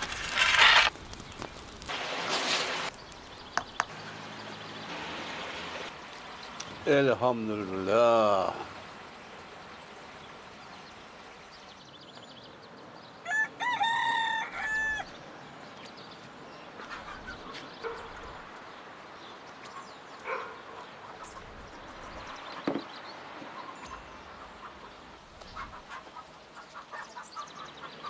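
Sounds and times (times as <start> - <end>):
rooster crowing: 13.2 - 15.2.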